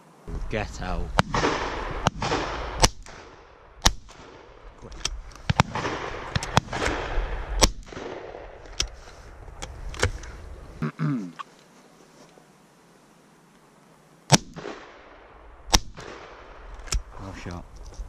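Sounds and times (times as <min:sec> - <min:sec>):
shotgun shots echoing: 0:01.1 - 0:04.6, 0:05.4 - 0:08.6, 0:14.3 - 0:17.2.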